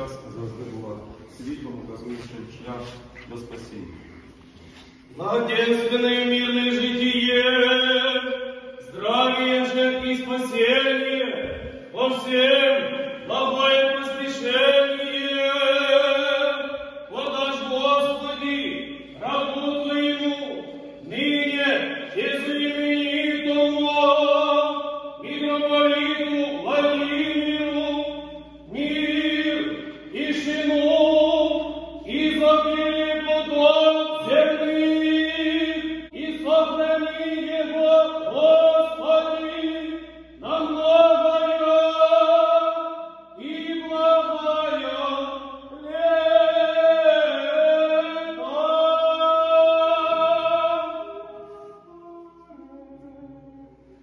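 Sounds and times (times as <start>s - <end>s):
choir chanting a cappella: 5.2s - 54.0s.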